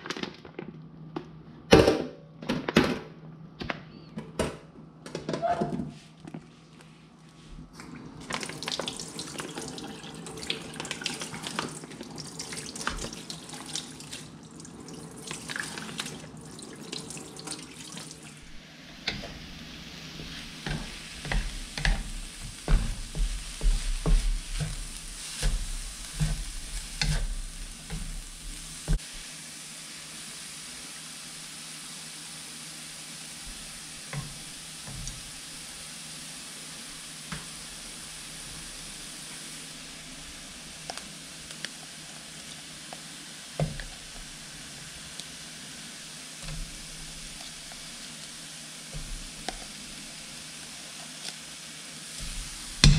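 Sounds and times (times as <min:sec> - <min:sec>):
tap water running and splashing: 0:07.8 - 0:29.2, 0:33.3 - 0:52.9
vegetables sizzling in a pan: 0:08.2 - 0:52.9
wooden spatula scraping a pan: 0:19.0 - 0:29.0.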